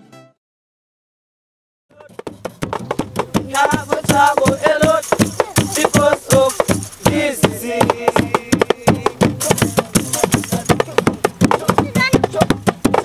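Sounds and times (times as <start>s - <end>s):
voices singing: 3.0s - 13.0s.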